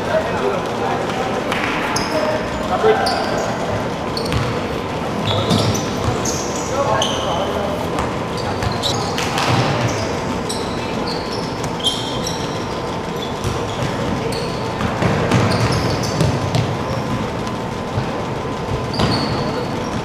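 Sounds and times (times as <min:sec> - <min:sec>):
sneakers squeaking: 0:00.0 - 0:20.0
basketball thudding: 0:04.3 - 0:04.6.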